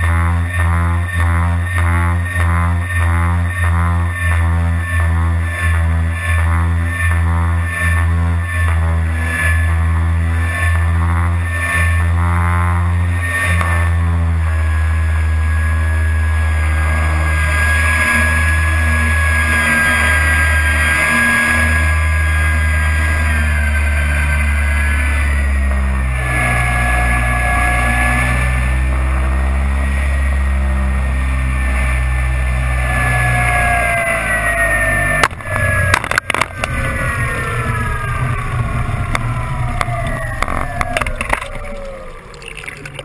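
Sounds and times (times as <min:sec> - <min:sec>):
music with bass line: 0:00.0 - 0:41.5
electric motors whining: 0:00.0 - 0:43.0.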